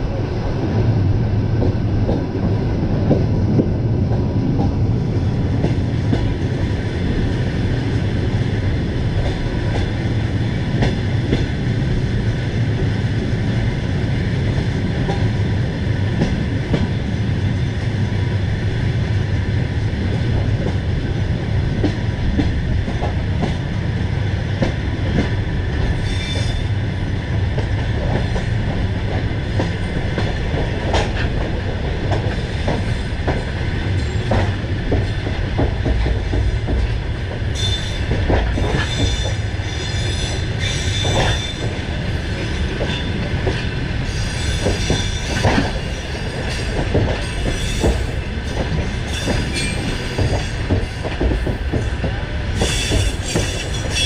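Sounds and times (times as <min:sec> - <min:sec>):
train rumbling on tracks: 0:00.0 - 0:54.0
train wheel squeals: 0:25.8 - 0:26.8, 0:37.5 - 0:43.2, 0:44.0 - 0:52.0, 0:52.6 - 0:54.0.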